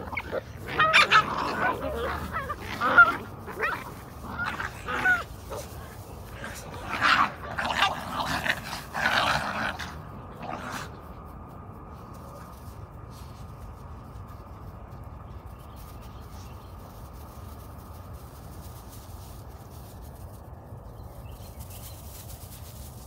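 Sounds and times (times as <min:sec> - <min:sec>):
dogs yelping and growling: 0:00.0 - 0:11.3
low steady background noise: 0:00.0 - 0:23.0.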